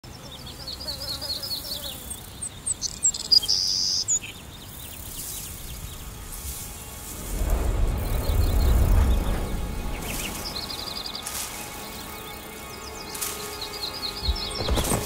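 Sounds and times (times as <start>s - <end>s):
upswept animal notes: 4.9s - 15.0s.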